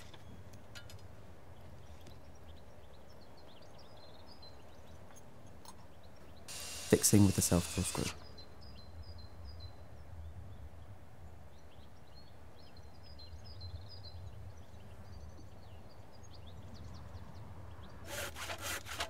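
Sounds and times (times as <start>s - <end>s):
small birds chirping: 0.0s - 10.9s, 11.5s - 18.1s
hand saw cutting timber: 6.5s - 8.2s, 18.1s - 19.0s.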